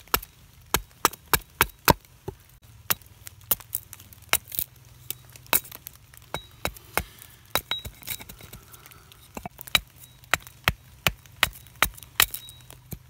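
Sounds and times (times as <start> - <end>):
axe chopping wood: 0.0 - 3.7, 9.4 - 13.0.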